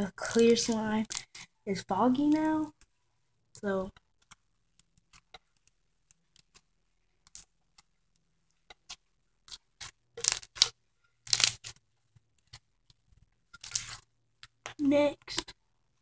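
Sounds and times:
slime crackling and clicking: 0.2 - 1.4, 7.2 - 7.9, 8.8 - 11.8.

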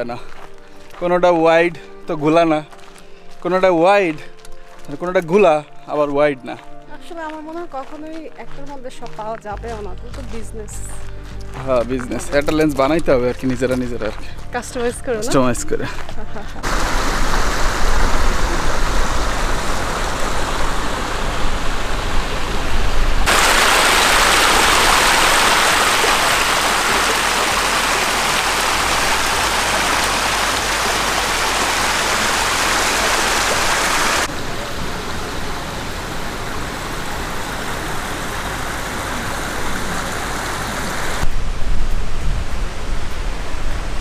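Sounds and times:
creek water running over rocks: 0.0 - 44.0.

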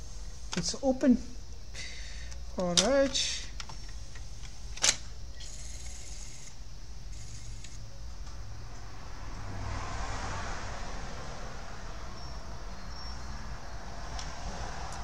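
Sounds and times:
disc player whir: 3.1 - 7.8
disc tray motor: 5.4 - 7.8.

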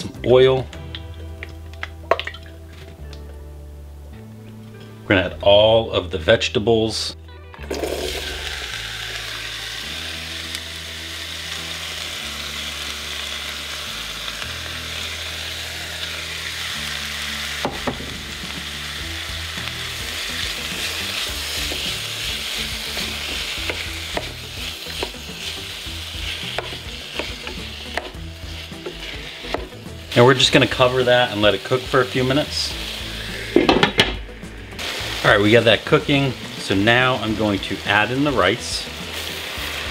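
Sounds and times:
vegetables sizzling in hot oil: 7.7 - 39.9.

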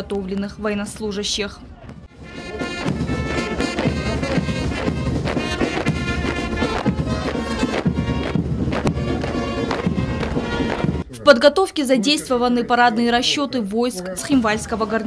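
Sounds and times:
brass band playing a march: 2.1 - 11.1.

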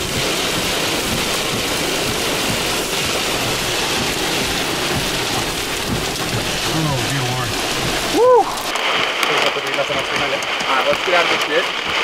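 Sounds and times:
heavy rain beating on vehicle: 0.0 - 12.0
wind gusts rumbling: 0.0 - 12.0.

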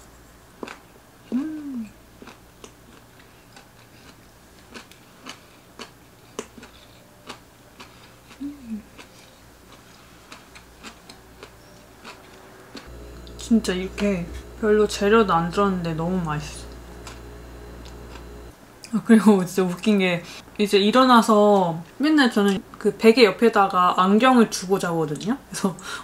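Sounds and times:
person humming mm: 1.3 - 2.0, 8.3 - 8.9
chewing with mouth clicks: 1.4 - 13.4.

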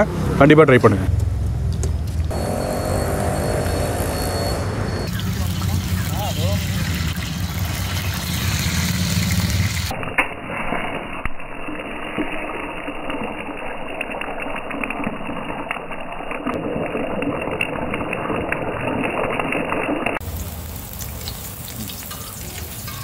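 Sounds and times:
meat sizzling in oil: 5.1 - 23.0.

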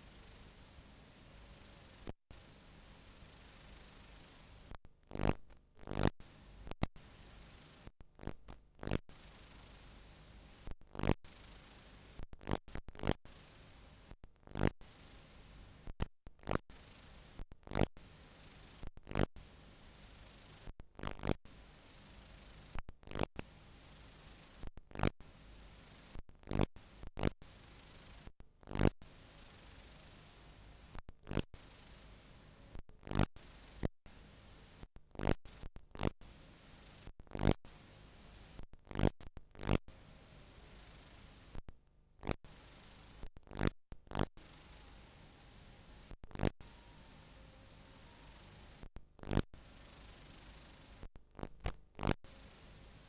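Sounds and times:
videotape hiss: 0.0 - 4.7, 6.2 - 7.8, 9.1 - 10.7, 11.3 - 12.2, 13.3 - 15.9, 16.7 - 17.4, 18.0 - 20.7, 21.5 - 22.8, 23.4 - 24.6, 26.8 - 28.3, 29.0 - 32.7, 33.4 - 34.9, 36.3 - 37.1, 37.7 - 38.6, 39.9 - 41.6, 42.5 - 43.3, 44.4 - 48.9, 49.6 - 53.0
crackling static bursts: 3.4 - 10.0, 10.6 - 19.3, 20.0 - 21.4, 22.0 - 23.5, 30.9 - 32.1, 33.1 - 39.8, 40.7 - 44.8, 46.0 - 47.0, 48.2 - 53.0.

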